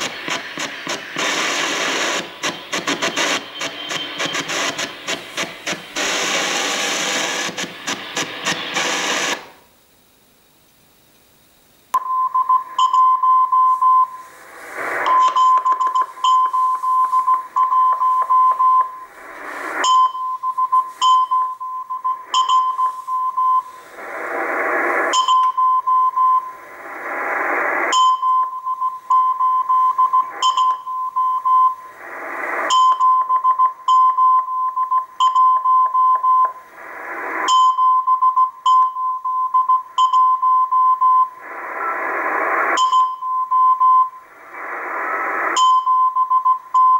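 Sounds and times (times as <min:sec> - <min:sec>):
morse code tone: 0:00.0 - 0:05.8, 0:12.0 - 0:14.3, 0:15.0 - 0:19.2, 0:19.8 - 0:23.8, 0:27.9 - 0:31.8, 0:42.8 - 0:44.2
radio static hiss: 0:00.0 - 0:46.9.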